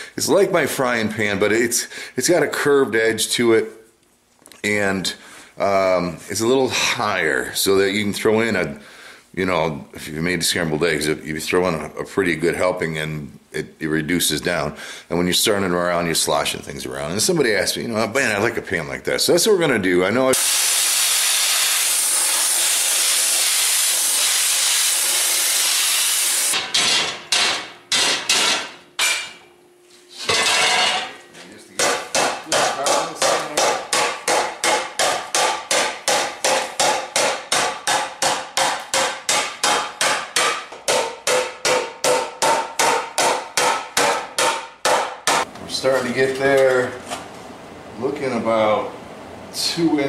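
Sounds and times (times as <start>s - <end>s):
cutting torch hissing: 20.3s - 26.6s
hammer striking ringing steel: 26.5s - 29.4s, 31.8s - 45.5s.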